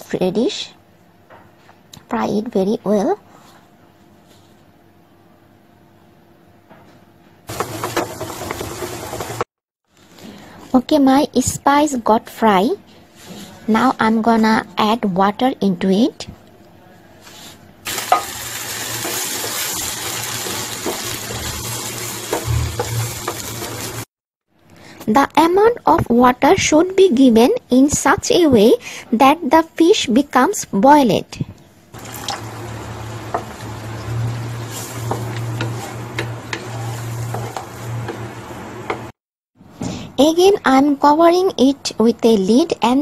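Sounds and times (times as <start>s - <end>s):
paste sizzling in hot oil: 7.5s - 9.5s, 17.8s - 24.1s, 32.0s - 38.8s.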